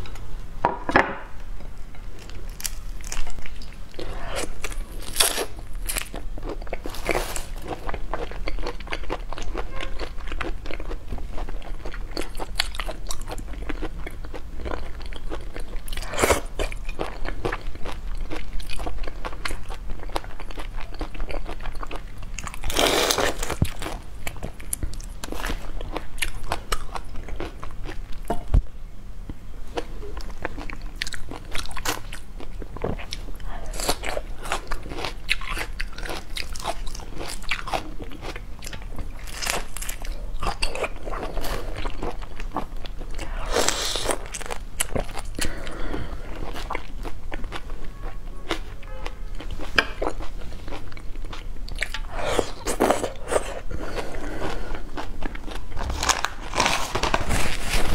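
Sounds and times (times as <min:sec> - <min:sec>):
loud crunches: 0:55.8 - 0:57.9.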